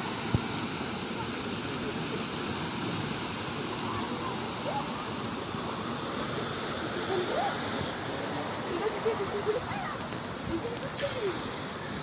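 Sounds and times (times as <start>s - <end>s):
water rushing over weirs: 0.0s - 12.0s.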